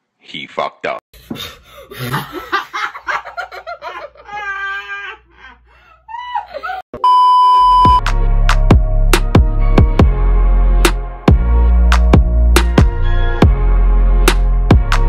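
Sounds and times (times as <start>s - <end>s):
girl laughing: 1.3s - 6.9s
loud steady beep: 7.0s - 8.0s.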